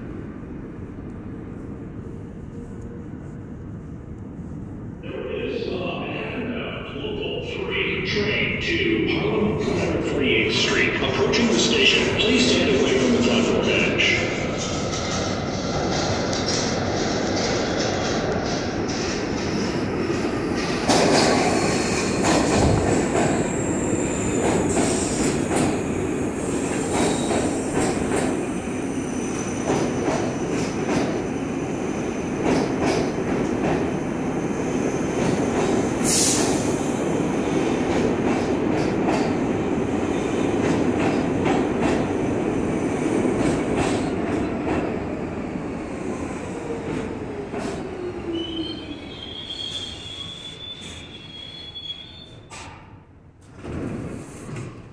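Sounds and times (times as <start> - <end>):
falling tone of slowing train: 0.0 - 54.9
train wheels rumbling on rails: 0.0 - 54.9
brake squeal: 48.4 - 52.5.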